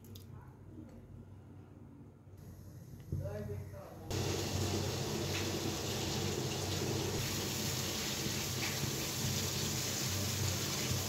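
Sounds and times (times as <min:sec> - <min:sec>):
water boiling in a pot: 0:04.1 - 0:11.0.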